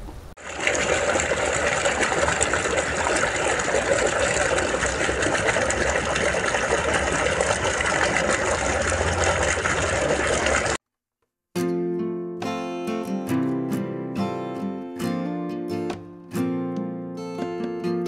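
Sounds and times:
water gushing into pond: 0:00.3 - 0:10.8.

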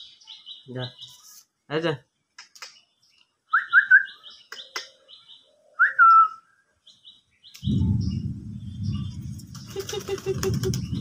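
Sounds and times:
parakeet wings flapping: 0:09.3 - 0:11.0.

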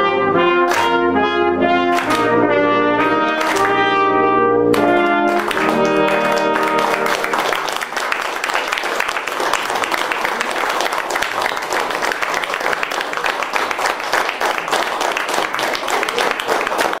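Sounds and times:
people clapping: 0:00.6 - 0:01.2, 0:01.8 - 0:04.0, 0:04.7 - 0:17.0.

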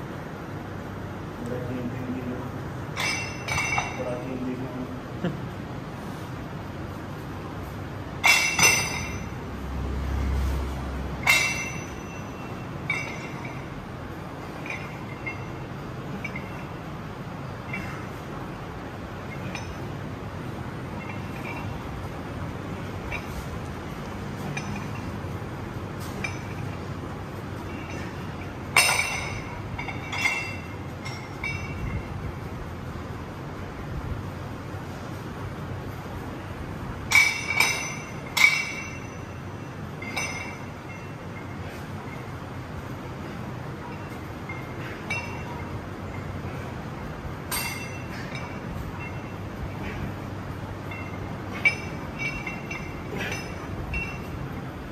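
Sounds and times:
weight plates clanking: 0:02.9 - 0:04.1, 0:08.2 - 0:09.4, 0:11.2 - 0:32.2, 0:37.0 - 0:54.9.

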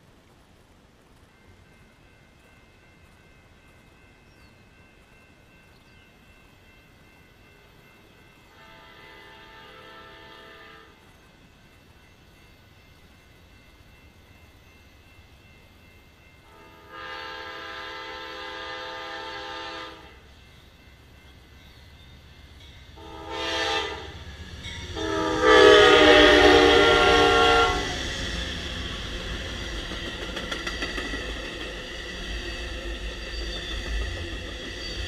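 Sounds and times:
train rumbling past: 0:00.0 - 0:35.0
locomotive air horn blasts: 0:08.5 - 0:11.0, 0:16.5 - 0:20.2, 0:23.0 - 0:24.2, 0:25.0 - 0:28.0.

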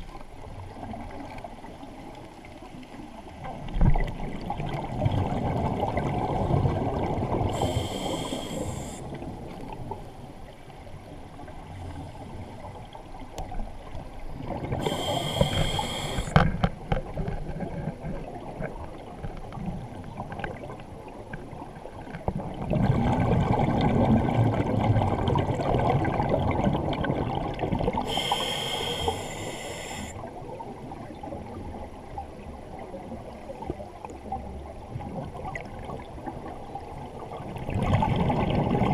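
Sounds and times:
bubbling exhaled air: 0:05.1 - 0:09.1, 0:14.5 - 0:16.4, 0:22.7 - 0:30.2
regulator hissing inhalations: 0:07.5 - 0:09.1, 0:14.8 - 0:16.4, 0:28.0 - 0:30.2.

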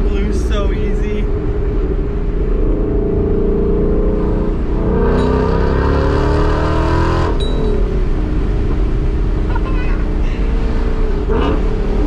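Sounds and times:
car engine accelerating: 0:00.0 - 0:12.0
supercharger whine: 0:01.2 - 0:09.6.

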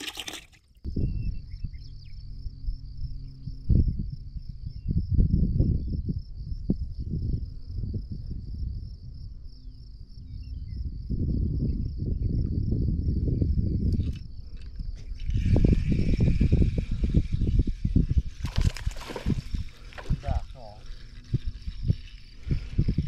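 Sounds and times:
insects chirring: 0:00.0 - 0:23.0.

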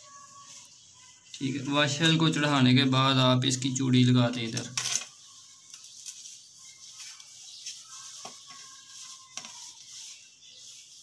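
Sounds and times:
metal shower fittings scraping: 0:04.3 - 0:06.3.

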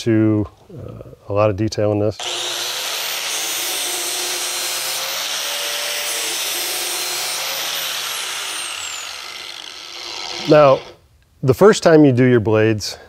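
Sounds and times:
angle grinder grinding steel: 0:02.2 - 0:11.0.

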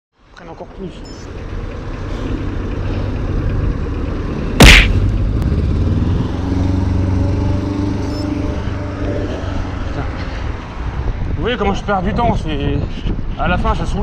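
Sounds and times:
loud sudden thump: 0:04.6 - 0:05.1
wind buffeting microphone: 0:09.6 - 0:14.0.

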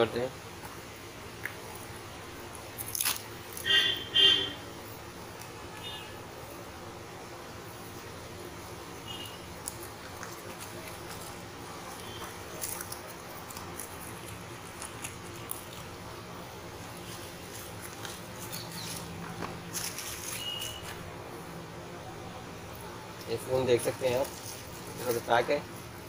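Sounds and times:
steady low hum: 0:00.0 - 0:26.0
packing tape crackling: 0:09.3 - 0:16.0, 0:16.8 - 0:21.1.

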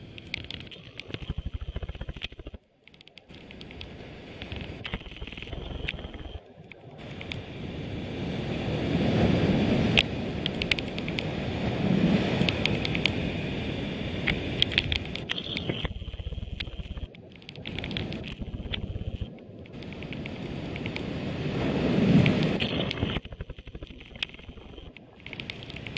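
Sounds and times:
sharp clicks: 0:00.0 - 0:07.5, 0:09.9 - 0:11.3, 0:12.4 - 0:13.2, 0:14.2 - 0:21.1, 0:22.2 - 0:25.9
sea washing over rocks: 0:03.2 - 0:25.9
wind on microphone: 0:07.0 - 0:25.9.

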